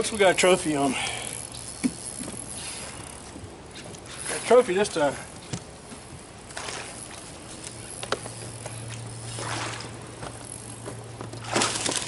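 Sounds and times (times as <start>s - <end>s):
low steady hum: 0.0s - 12.0s
fish splashing in water: 8.8s - 10.1s, 11.4s - 12.0s.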